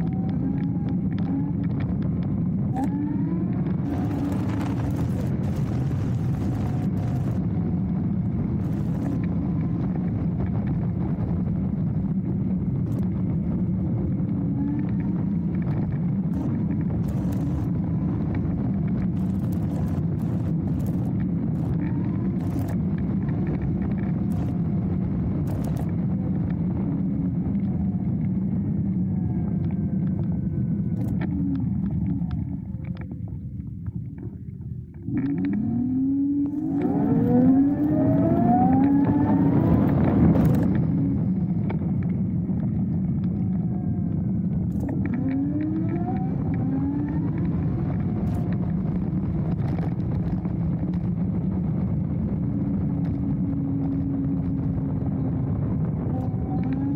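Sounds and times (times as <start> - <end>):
small clicks: 0.0 - 7.7, 8.6 - 10.8, 12.7 - 13.3, 14.5 - 51.3, 56.1 - 56.9
electric motor whine: 0.0 - 10.2, 12.8 - 33.1, 34.9 - 49.6
tyre noise on unpaved path: 0.0 - 56.9
wind rumble: 0.0 - 56.9.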